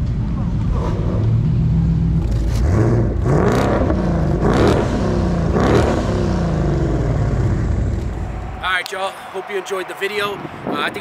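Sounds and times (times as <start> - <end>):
car engine idling and revving: 0.0 - 8.2.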